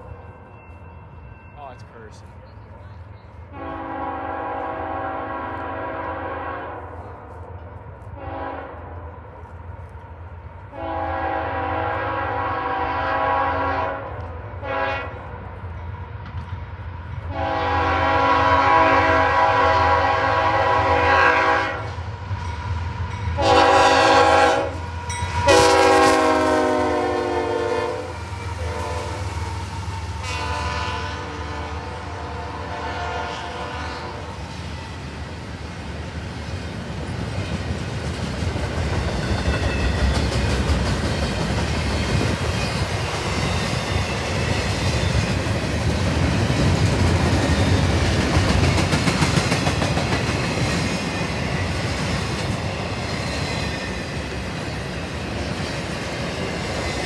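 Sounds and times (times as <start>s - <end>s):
train rumbling: 0.0s - 57.0s
locomotive air horn blasts: 3.5s - 7.0s, 8.2s - 9.2s, 10.7s - 15.2s, 17.3s - 22.0s, 23.4s - 24.8s, 25.4s - 29.3s, 30.2s - 34.4s.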